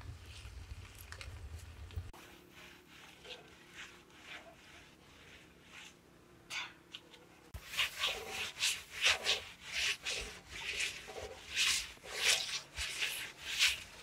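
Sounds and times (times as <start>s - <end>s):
cloth scrubbing clay oven wall: 2.0s - 14.0s.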